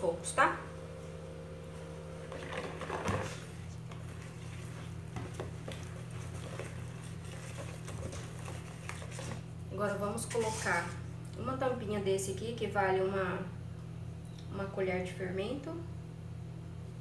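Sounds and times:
whisk mixing batter in bowl: 2.3s - 9.6s, 10.2s - 11.0s.

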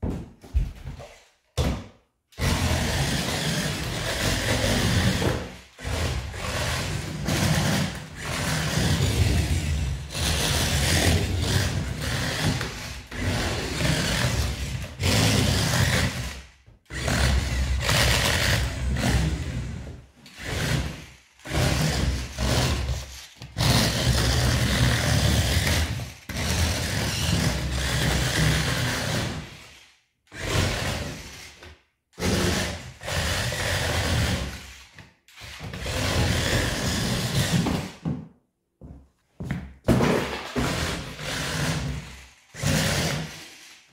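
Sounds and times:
toy motor and gears whirring: 20.3s - 31.6s, 41.0s - 43.9s.

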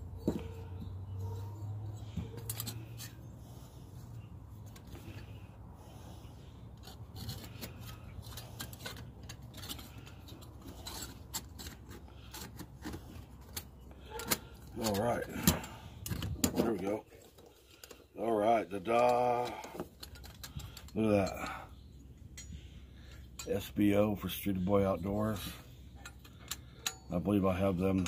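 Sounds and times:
steel plates scraping and clicking: 2.0s - 3.3s, 6.7s - 24.4s, 25.3s - 28.0s.

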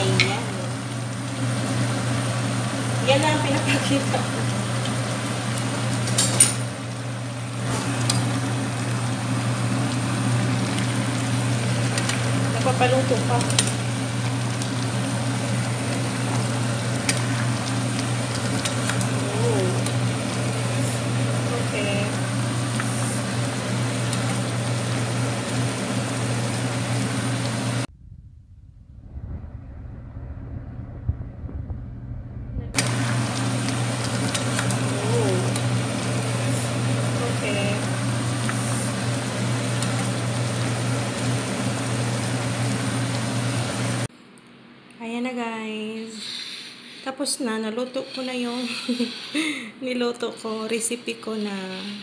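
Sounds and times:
fan humming: 0.0s - 52.0s
quiet low rumble: 27.8s - 33.0s.

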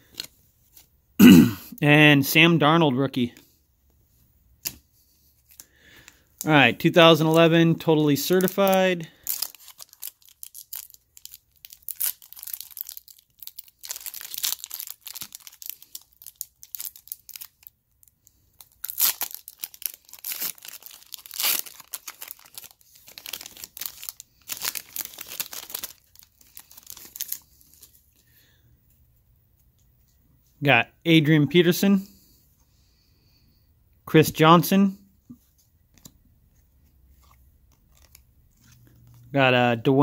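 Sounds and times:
foil wrapper tearing and crinkling: 8.2s - 27.9s.

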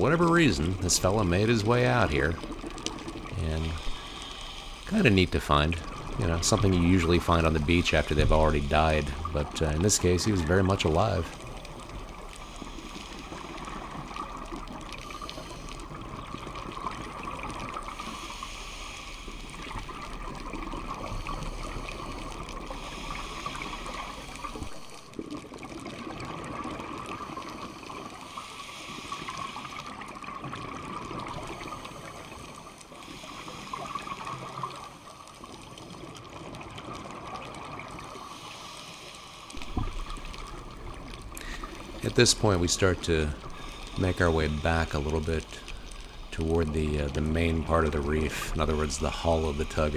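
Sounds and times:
underwater hiss: 3.2s - 5.0s, 11.3s - 25.2s, 27.0s - 30.6s, 31.2s - 35.6s, 37.9s - 47.1s
diver breathing through regulator: 3.6s - 4.9s, 14.9s - 16.0s, 17.9s - 19.8s, 20.9s - 25.1s, 38.3s - 46.6s
exhaled bubbles: 39.5s - 49.9s.

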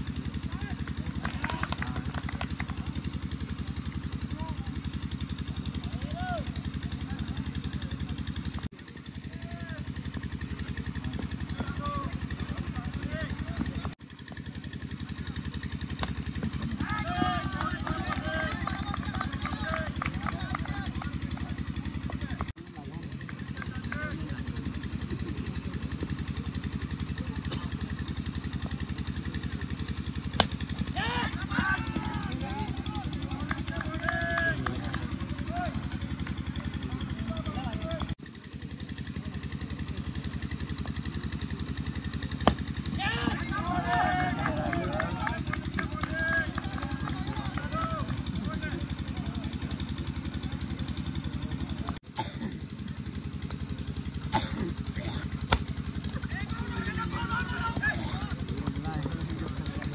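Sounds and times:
engine running steadily: 0.0s - 59.9s
bat striking plastic ball: 15.9s - 16.8s, 30.2s - 30.8s, 42.4s - 43.4s, 55.5s - 56.2s
sharp crack: 30.3s - 30.7s, 42.4s - 42.8s, 55.5s - 56.2s.

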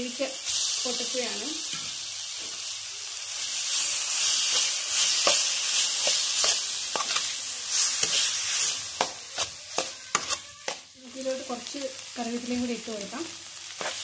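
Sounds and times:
frying sizzle: 0.0s - 14.0s
spatula scraping a pan: 3.7s - 11.0s, 13.6s - 14.0s.

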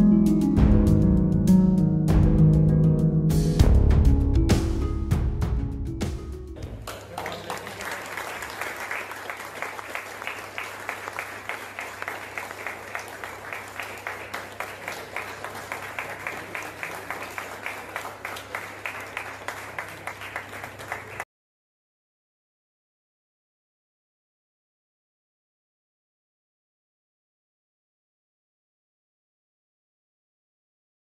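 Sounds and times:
people clapping: 6.6s - 21.3s.

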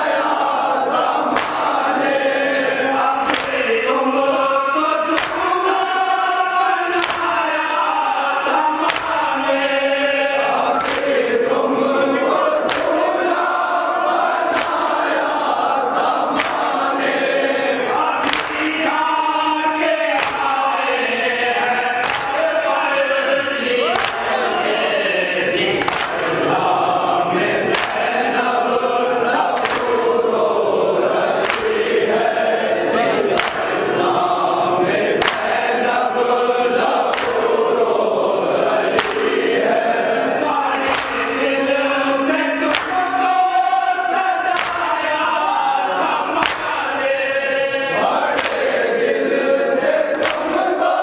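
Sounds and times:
crowd chanting a lament: 0.0s - 51.0s
hands slapping chests: 1.0s - 2.2s, 3.2s - 3.8s, 5.1s - 5.7s, 6.9s - 7.4s, 8.8s - 9.4s, 10.5s - 11.3s, 12.4s - 17.2s, 17.9s - 18.9s, 20.1s - 20.8s, 22.0s - 23.3s, 23.9s - 24.4s, 25.6s - 26.6s, 27.6s - 28.4s, 29.4s - 30.2s, 31.2s - 32.0s, 32.9s - 34.0s, 35.0s - 35.7s, 36.8s - 37.8s, 38.8s - 39.6s, 40.7s - 41.4s, 42.6s - 43.4s, 44.4s - 45.0s, 46.3s - 47.0s, 48.1s - 48.9s, 50.1s - 50.8s
hands beating on chests: 33.3s - 33.8s, 40.7s - 41.2s, 46.4s - 46.8s.

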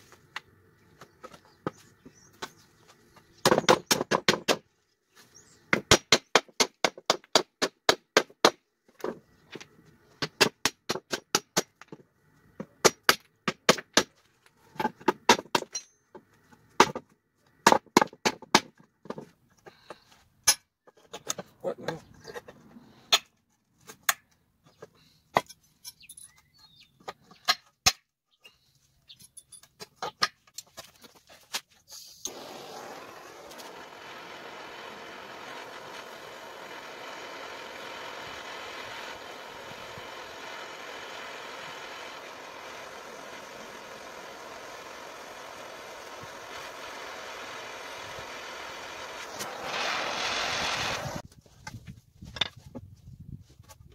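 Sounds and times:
hammer striking wooden pallet: 3.4s - 4.7s, 5.7s - 8.6s.

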